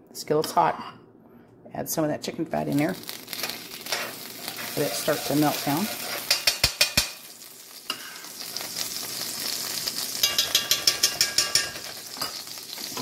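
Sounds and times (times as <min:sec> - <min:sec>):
fat sizzling in a skillet: 0:02.7 - 0:13.0
utensil clicking in a pan: 0:06.2 - 0:07.2, 0:10.2 - 0:11.9.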